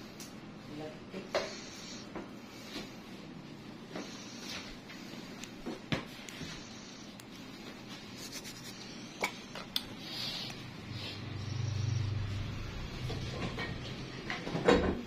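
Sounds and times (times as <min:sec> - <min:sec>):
rubbing and handling noise: 0:01.4 - 0:11.2.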